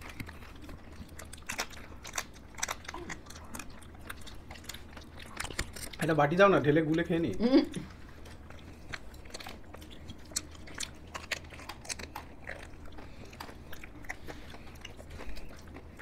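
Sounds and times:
wet mouth clicks and lip smacks: 8.8 - 12.8.

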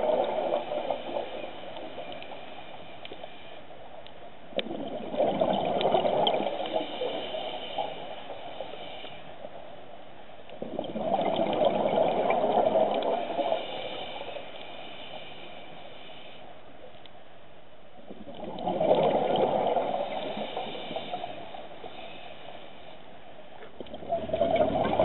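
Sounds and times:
underwater bubbles burbling: 0.0 - 2.2, 4.5 - 7.2, 10.5 - 13.6, 18.1 - 21.3, 23.6 - 25.0
underwater hiss: 0.0 - 3.9, 5.4 - 9.9, 11.1 - 16.7, 18.7 - 23.2.

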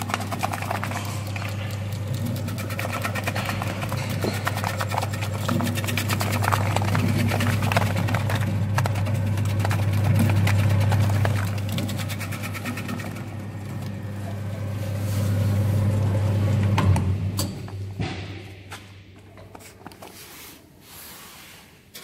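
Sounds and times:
blades clattering through onions: 0.0 - 14.3.

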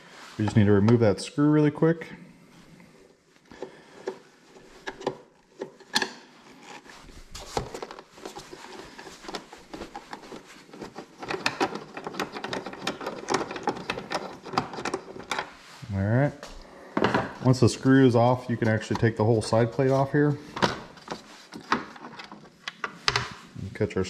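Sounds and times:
screwdriver clicking and scraping: 7.8 - 15.5.

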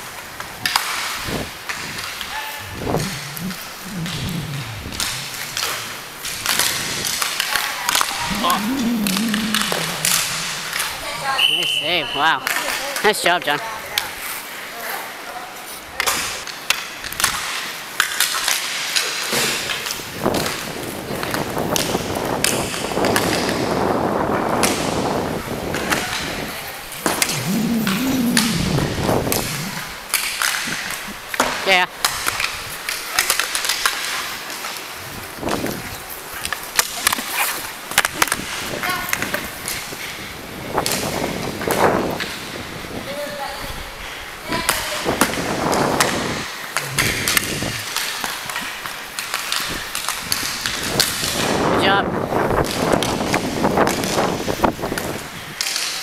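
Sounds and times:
person calling out: 2.6 - 5.6, 8.3 - 11.3, 27.3 - 29.8, 46.8 - 47.9
hockey sticks and puck clacking: 16.0 - 23.6, 55.6 - 56.0.

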